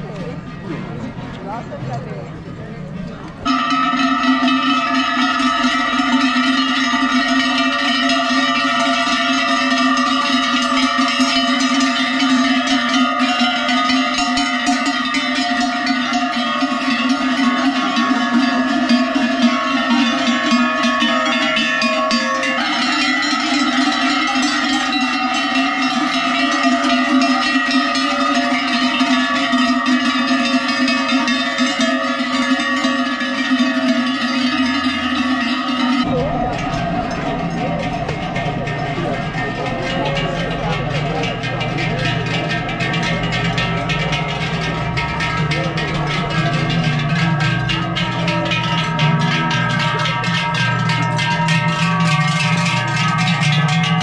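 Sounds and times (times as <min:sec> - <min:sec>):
large cowbells clanging: 0:00.0 - 0:54.0.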